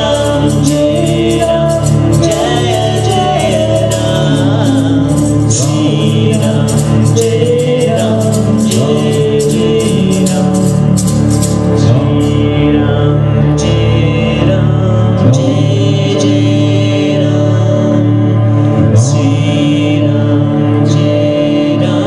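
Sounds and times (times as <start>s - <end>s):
woman singing: 0.0s - 10.7s
low drone: 0.0s - 22.0s.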